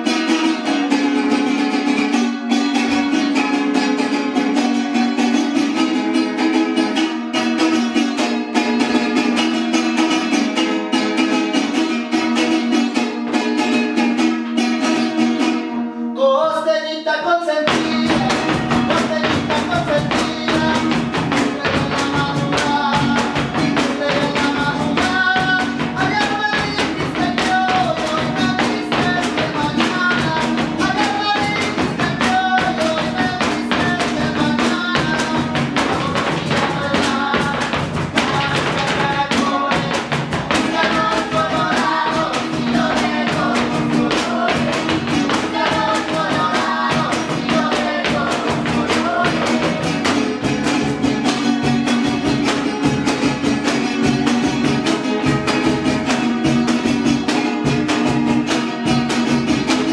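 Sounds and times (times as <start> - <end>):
strummed small guitars: 0.0 - 59.9
people singing: 16.6 - 52.6.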